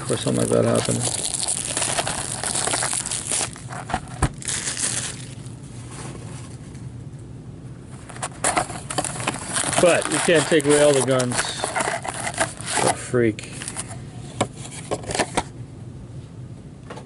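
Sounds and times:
quiet handling noise: 0.0 - 4.4, 5.4 - 15.6
plastic wrap tearing and crinkling: 0.1 - 5.6, 8.2 - 12.9.

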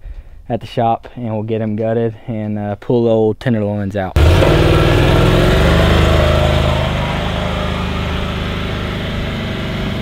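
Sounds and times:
vehicle engine driving off: 4.2 - 10.0.

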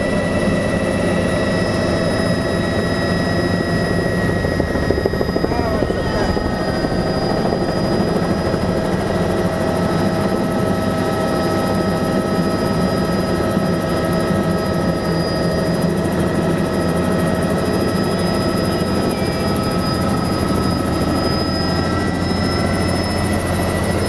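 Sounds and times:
helicopter rotor and engine: 0.0 - 24.0
steady whine: 0.0 - 24.0.

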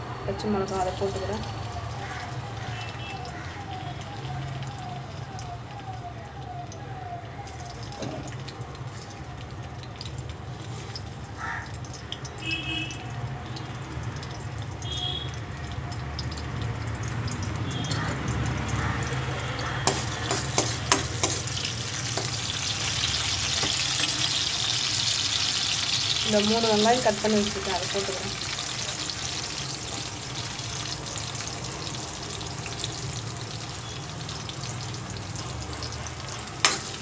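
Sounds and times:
garlic sizzling in hot oil: 0.0 - 5.7, 7.3 - 37.0
metal spoon tapping pan: 19.1 - 22.5, 23.5 - 24.3, 36.6 - 37.0.

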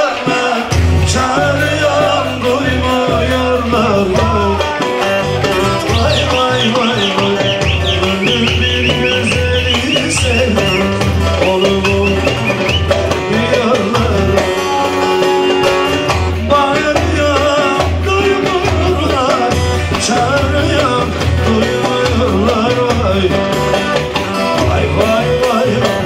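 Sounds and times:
hand drum rhythm: 0.0 - 26.0
steady bass beat: 0.7 - 14.8
lute melody: 1.0 - 26.0.

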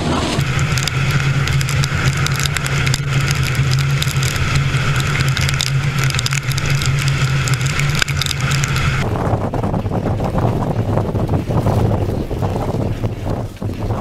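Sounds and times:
car engine and road drone: 0.0 - 14.0
rain pattering on car: 0.4 - 9.0.

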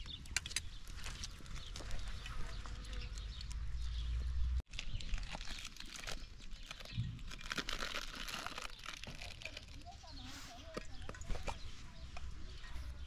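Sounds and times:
plastic packet crinkling: 4.7 - 11.6.

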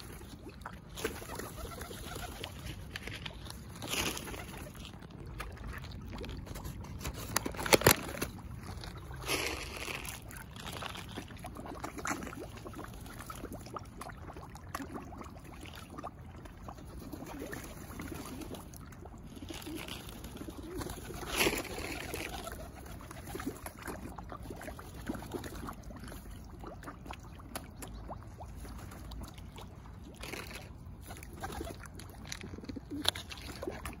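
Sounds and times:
pigeons cooing: 1.0 - 2.7.

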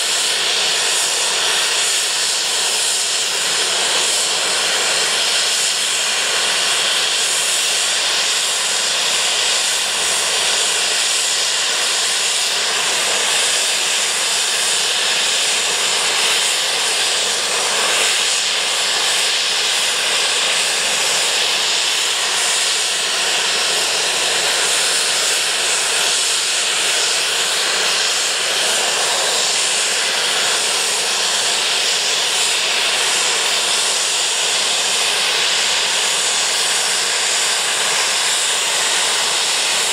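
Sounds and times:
steam locomotive hissing steam: 0.0 - 39.9.

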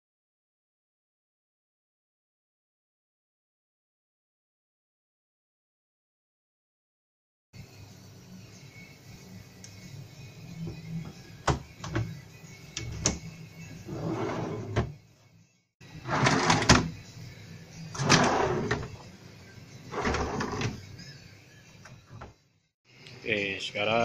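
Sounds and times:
drawers sliding on metal slides: 13.9 - 14.9, 16.0 - 16.9, 18.0 - 19.0, 19.9 - 20.8.

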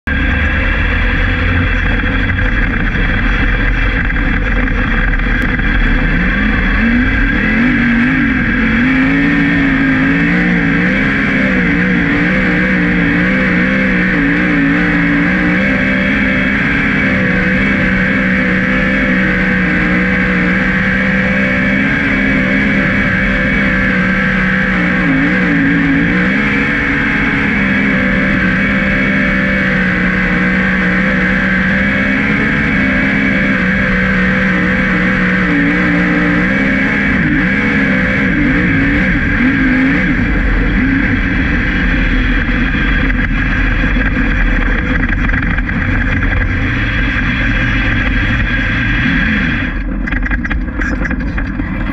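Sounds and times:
race car engine at full load: 0.0 - 51.9
rush of wind and dirt: 0.1 - 51.9.

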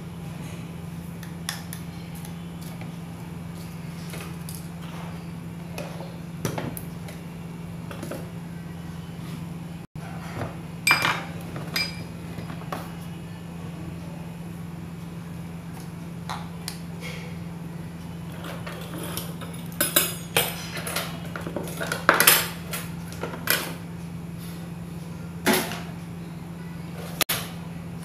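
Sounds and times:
steady low hum: 0.0 - 28.0
kitchenware clicks and knocks: 10.3 - 12.6, 18.5 - 23.8, 25.5 - 25.9.

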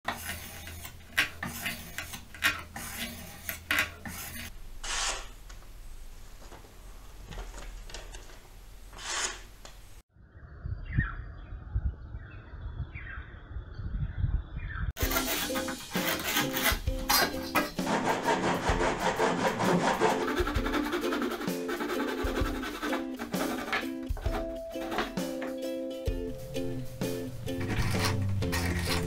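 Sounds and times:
low wind rumble: 10.2 - 15.0
sharpening stone rasping on knife: 15.0 - 17.9
knife slicing paper: 15.0 - 18.2.

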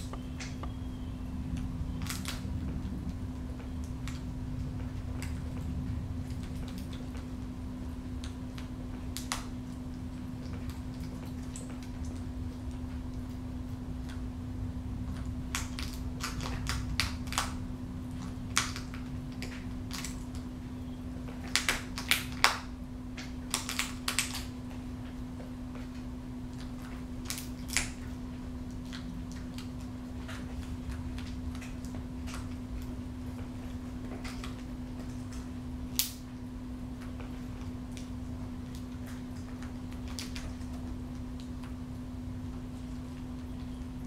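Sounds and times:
beak clicking and snapping: 1.5 - 4.3, 8.2 - 14.3, 15.1 - 20.5, 21.3 - 24.6, 26.5 - 33.0, 34.0 - 36.3, 36.9 - 41.8.

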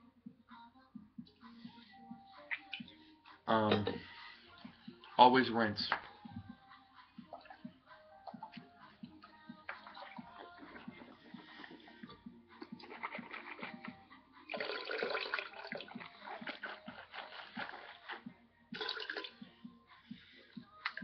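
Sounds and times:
liquid splash: 18.8 - 19.4.

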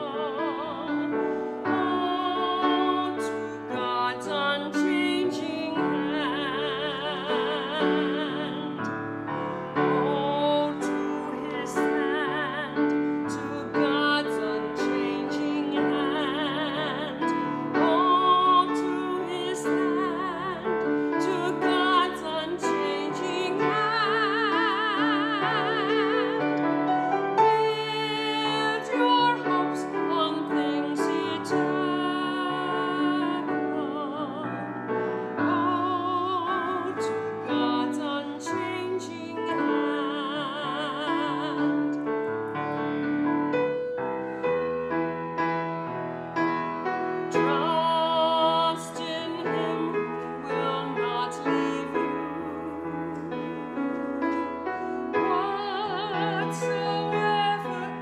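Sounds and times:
woman singing with vibrato: 0.0 - 8.9, 9.7 - 42.0, 47.2 - 58.0
grand piano: 0.0 - 58.0.

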